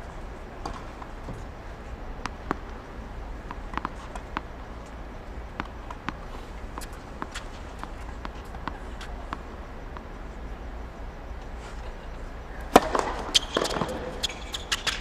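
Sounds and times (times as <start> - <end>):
steady low hum: 0.0 - 15.0
tennis ball bouncing: 0.6 - 10.5, 12.6 - 15.0.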